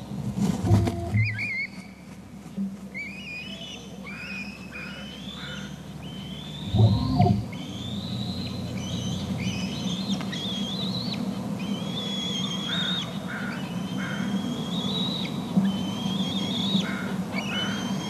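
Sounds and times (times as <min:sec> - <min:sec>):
young eagle whining calls: 0:03.0 - 0:18.0
short low rumble: 0:06.7 - 0:07.6.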